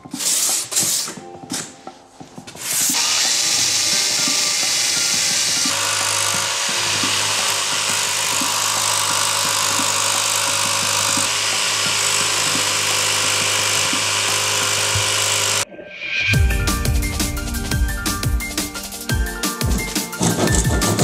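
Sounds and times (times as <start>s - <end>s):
jigsaw cutting fibreboard: 2.8s - 15.6s, 20.2s - 21.0s.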